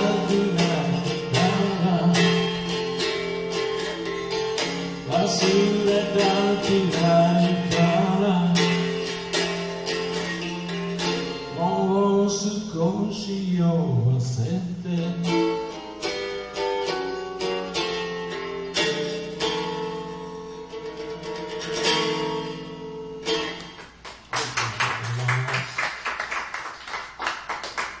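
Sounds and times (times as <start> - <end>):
acoustic guitar playing: 0.0 - 25.7.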